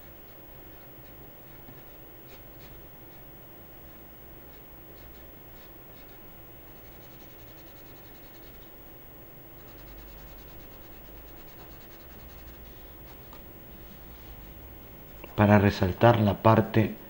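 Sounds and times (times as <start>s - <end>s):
pencil scratching on paper: 4.5s - 8.7s, 9.6s - 13.4s.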